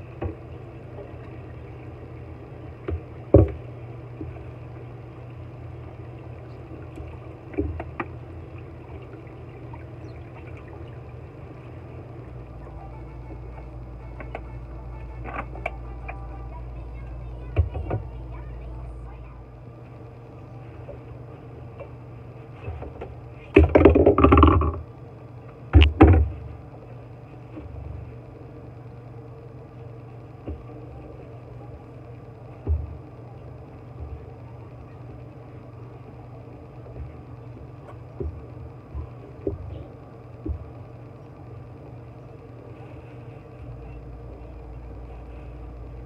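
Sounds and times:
low mechanical hum: 0.0 - 46.0.

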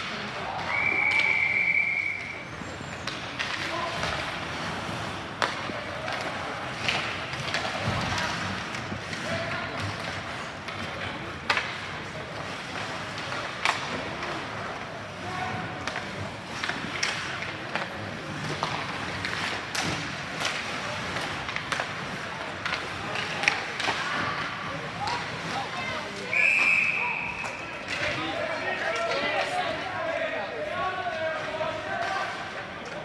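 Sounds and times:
skates scraping on ice: 0.0 - 26.4
clacks of sticks and puck: 0.0 - 33.0
murmur of spectators: 0.0 - 33.0.

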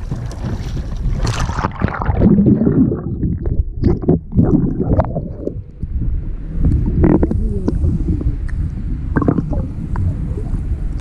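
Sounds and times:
water splashing: 0.0 - 5.6
muffled underwater bubbling: 0.0 - 11.0.

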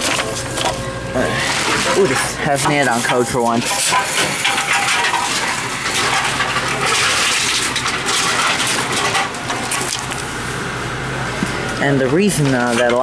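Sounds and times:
vending machine whirring: 0.0 - 13.0.

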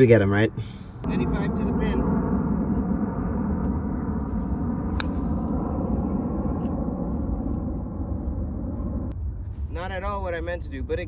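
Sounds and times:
steady low rumble: 0.7 - 11.0
golf iron striking ball: 4.9 - 5.5.

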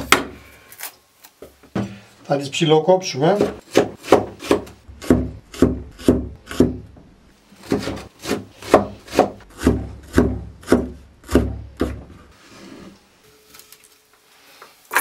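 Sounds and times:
knife chopping on cutting board: 3.4 - 6.8, 7.6 - 12.0.

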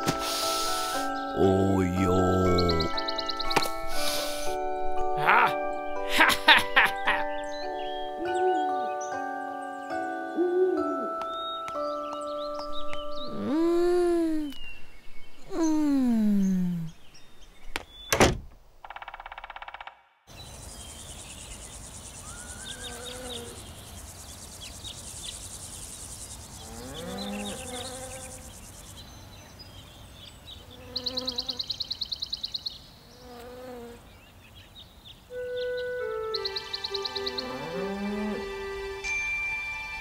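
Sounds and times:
insects buzzing and chirping: 0.0 - 5.5, 17.7 - 40.0
rapid chirping trills: 0.4 - 4.5, 20.4 - 29.3.

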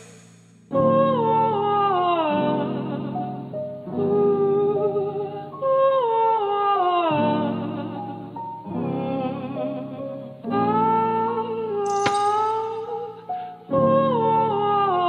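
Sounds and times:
hip-hop beat: 0.0 - 0.6.

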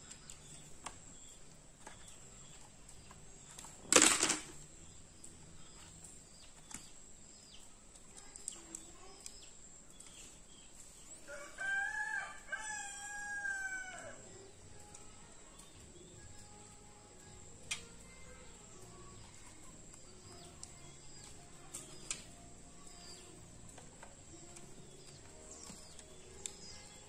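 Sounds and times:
rooster crowing: 11.3 - 14.3.

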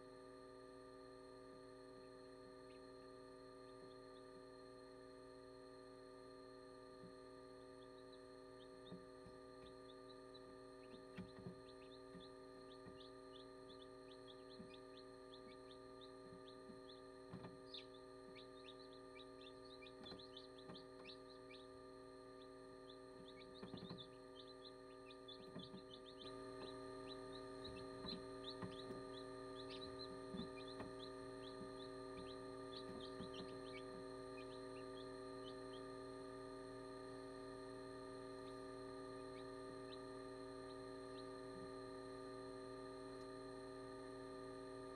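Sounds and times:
steady electrical hum: 0.0 - 44.9
chicks peeping: 7.6 - 36.0, 38.4 - 41.6.

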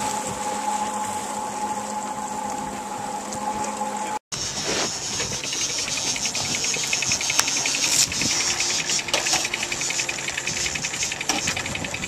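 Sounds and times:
outboard motor running: 0.0 - 12.0
wind and water noise: 0.0 - 12.0
fast even ticking: 5.3 - 12.0.

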